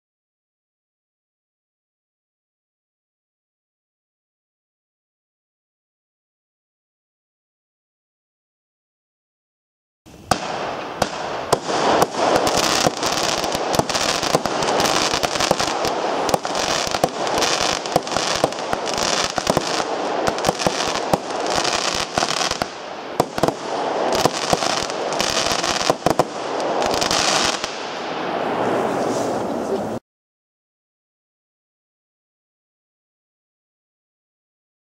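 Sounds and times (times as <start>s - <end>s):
fireworks hiss: 10.1s - 30.0s
fireworks launch thumps and bursts: 10.2s - 27.8s.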